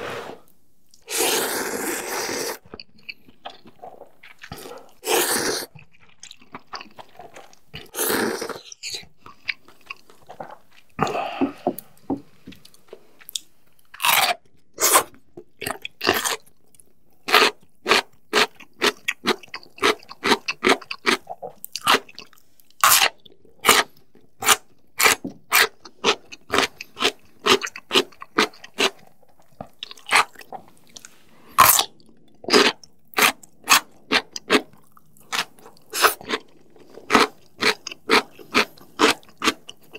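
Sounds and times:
slurping noodles: 0.0s - 2.7s, 3.7s - 5.8s, 7.0s - 8.7s, 35.4s - 39.6s
crunchy chewing: 0.9s - 11.3s, 12.6s - 39.9s.

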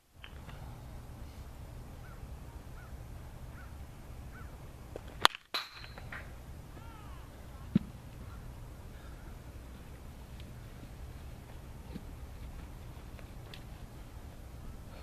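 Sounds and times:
bat cracking ball: 4.9s - 8.5s.

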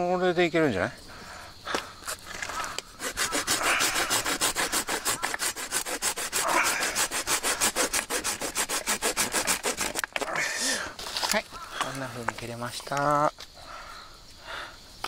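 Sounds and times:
hand saw cutting branch: 2.1s - 11.3s.

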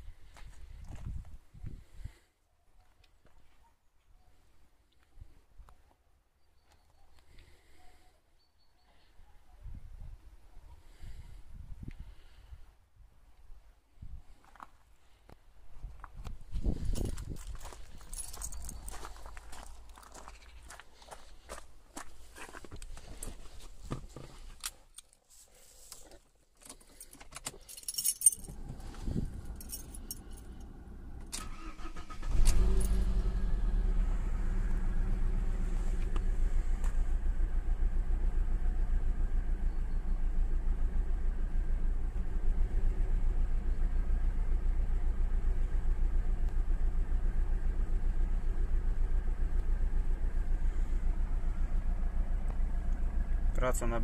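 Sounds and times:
car engine starting and idling: 16.5s - 24.8s, 26.6s - 54.0s
keys jingling: 16.9s - 19.4s, 26.6s - 30.6s.

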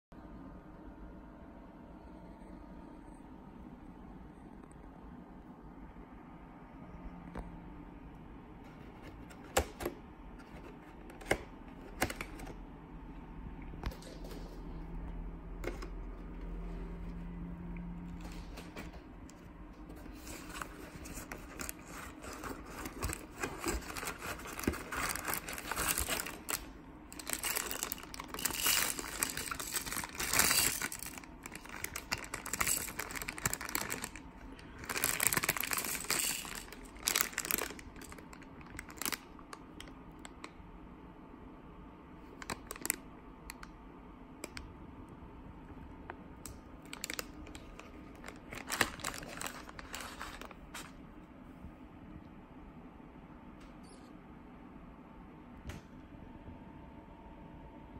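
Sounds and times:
rummaging through paper wrappers: 18.0s - 39.9s, 46.8s - 51.0s
plastic bag crinkling: 19.9s - 39.9s, 42.4s - 43.0s, 46.8s - 51.0s.

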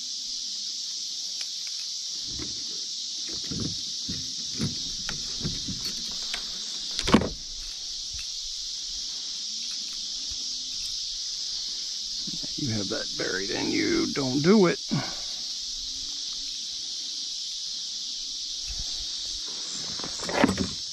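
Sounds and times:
insects chirring: 0.0s - 20.9s
handling knocks and clicks: 3.3s - 8.3s.

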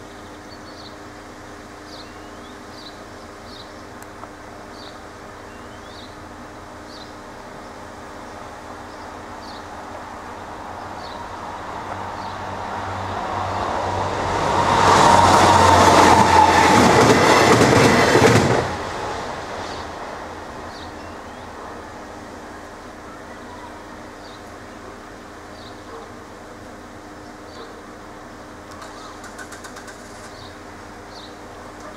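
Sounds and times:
train wheels clattering over rails: 13.6s - 19.9s, 28.8s - 30.6s.

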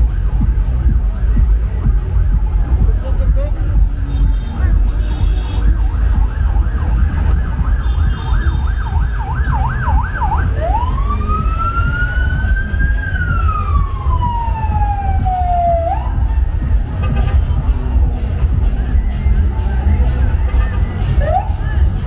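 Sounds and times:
heavy low rumble: 0.0s - 22.0s
electronic siren yelp and wail: 5.5s - 16.4s, 21.2s - 21.6s.

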